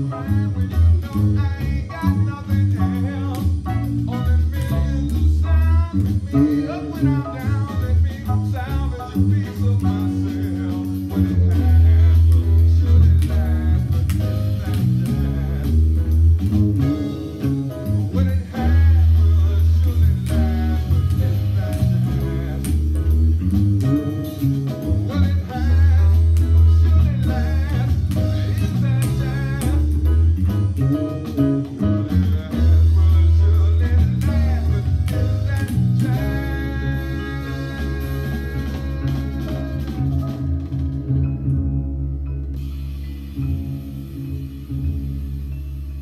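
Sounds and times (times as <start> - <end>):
backing music: 0.0 - 46.0
fretless bass played fingerstyle: 0.0 - 46.0.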